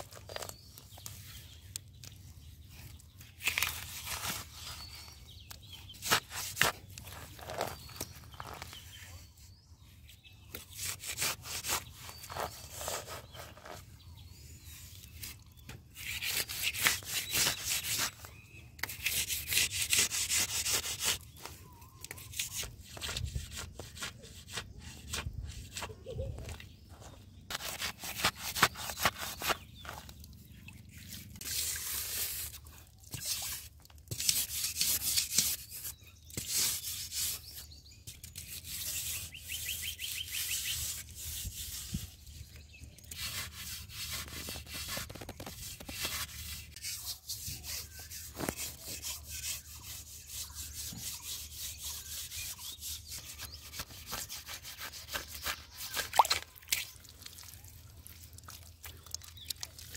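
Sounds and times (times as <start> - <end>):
metal trowel scraping wet mud: 5.9 - 9.0, 10.6 - 13.9, 14.6 - 21.4, 27.1 - 30.1, 30.9 - 57.0.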